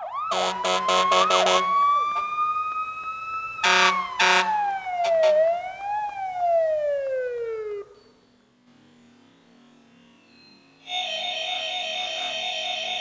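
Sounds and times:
synthesized siren-like tone: 0.0s - 13.0s
pulsed chord hits: 8.0s - 13.0s.

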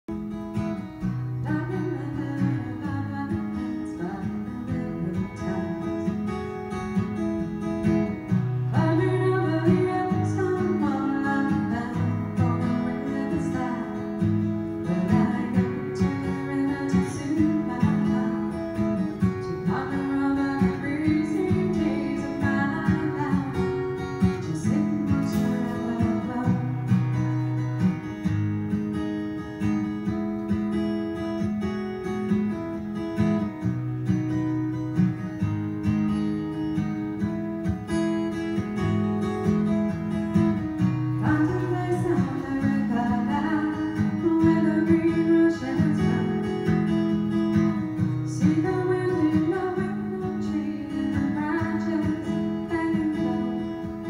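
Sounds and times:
acoustic guitar strumming: 0.1s - 54.0s.

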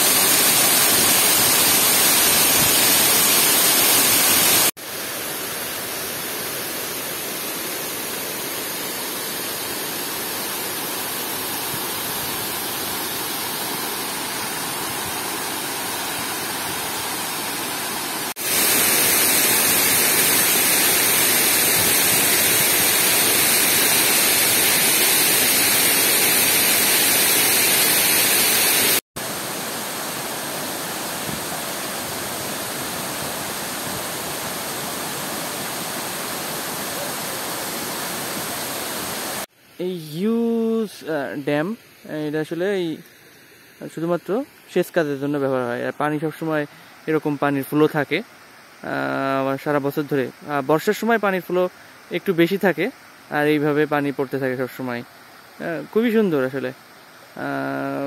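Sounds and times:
water rushing down spillway: 0.0s - 4.8s, 6.8s - 39.5s
whitewater over rocks: 0.0s - 39.5s
water cascading into pool: 0.0s - 58.0s.

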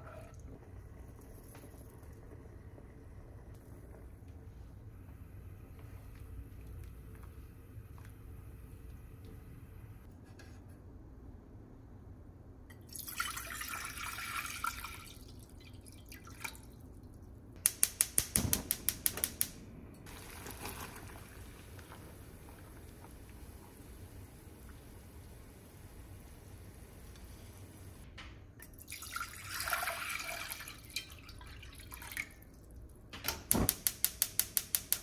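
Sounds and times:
water pouring into a pot: 12.8s - 17.2s, 20.1s - 27.9s, 28.6s - 32.9s
gas stove igniter clicking: 17.6s - 19.6s, 33.3s - 35.0s.

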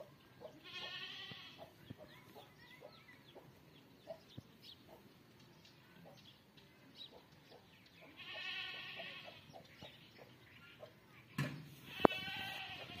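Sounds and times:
animal bleating call: 0.6s - 1.7s, 8.1s - 9.5s, 11.8s - 13.0s.

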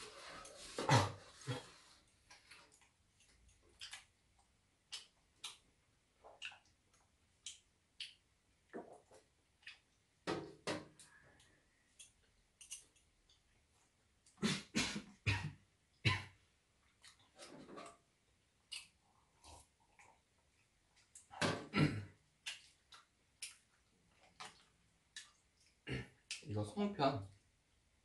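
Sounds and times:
person coughing: 0.8s - 1.2s, 21.6s - 22.1s.

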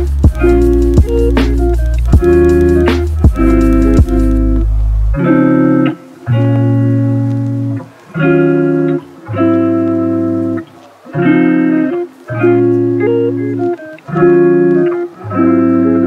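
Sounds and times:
held chords instrumental music: 0.0s - 16.0s.

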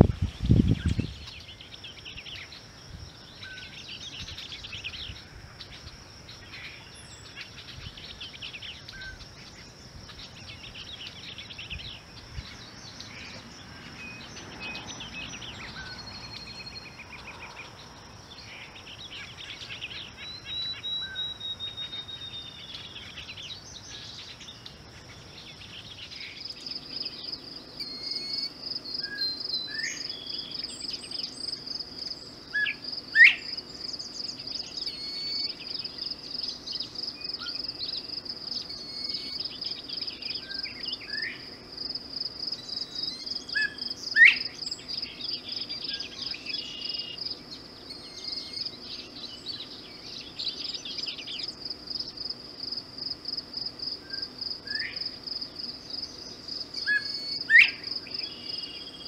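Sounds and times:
high insect trill: 0.0s - 59.0s
pulsing insect chirp: 0.0s - 59.0s
bird singing varied phrases: 18.4s - 24.7s, 25.4s - 41.5s, 42.5s - 51.6s, 56.0s - 59.0s
other birds calling: 42.5s - 51.6s, 55.7s - 59.0s.

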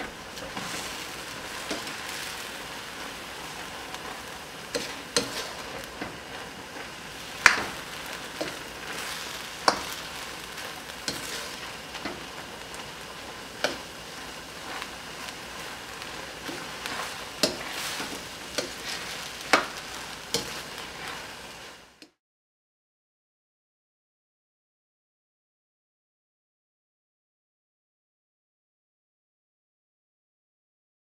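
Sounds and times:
food sizzling in a wok: 0.0s - 22.2s
spatula scraping and knocking pan: 0.0s - 22.2s.

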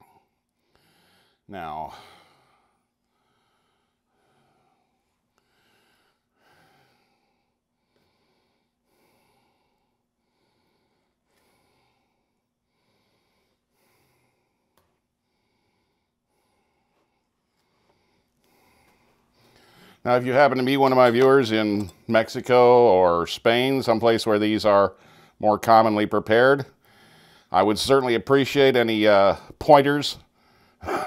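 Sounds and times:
man breathing faintly: 0.0s - 22.1s, 24.9s - 25.4s, 26.7s - 27.6s, 30.2s - 31.0s.

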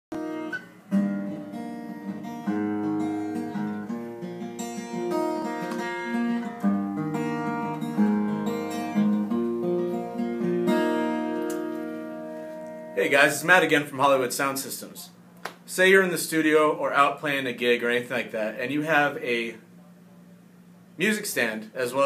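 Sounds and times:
acoustic guitar strumming chords: 0.1s - 13.8s.

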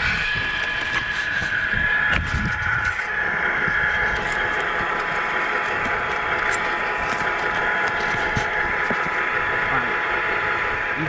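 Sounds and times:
electric motor and gearbox whining: 0.0s - 11.0s.

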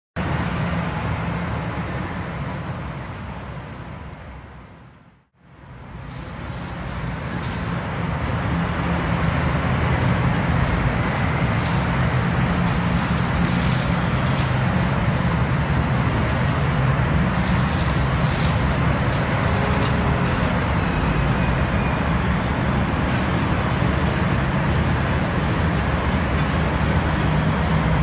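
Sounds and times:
diesel truck engines running: 5.5s - 28.0s.

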